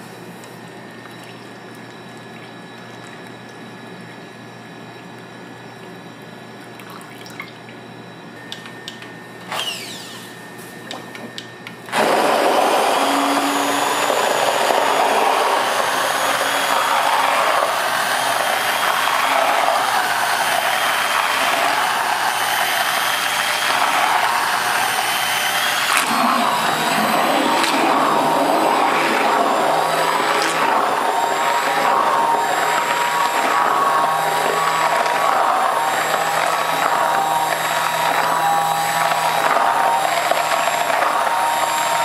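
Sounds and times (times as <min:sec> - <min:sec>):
small electric motor running: 0:09.5 - 0:10.3, 0:12.0 - 0:42.0.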